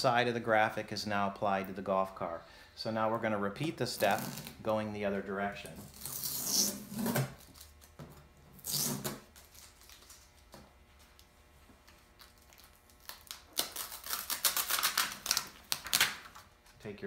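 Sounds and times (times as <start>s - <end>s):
paper crinkling and crackling: 9.4s - 16.5s.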